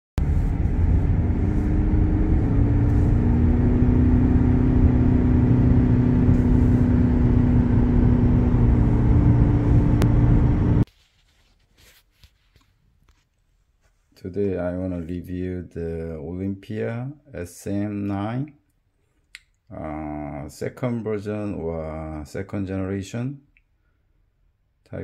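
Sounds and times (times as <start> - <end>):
car road and engine noise: 0.2 - 10.9.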